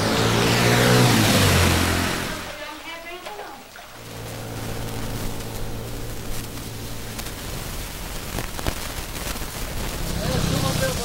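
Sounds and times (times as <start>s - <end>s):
outdoor hiss: 0.0s - 11.0s
low hum: 3.7s - 9.3s.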